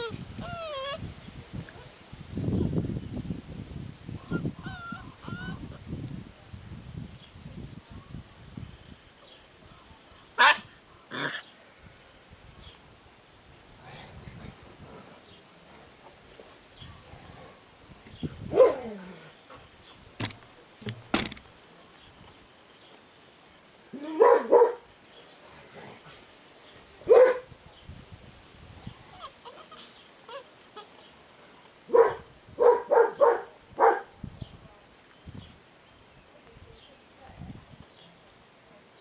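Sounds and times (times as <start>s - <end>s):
dogs barking and yipping: 18.5s - 18.9s, 24.2s - 24.8s, 27.1s - 27.5s, 31.9s - 34.1s
sharp knocks: 20.2s - 21.4s.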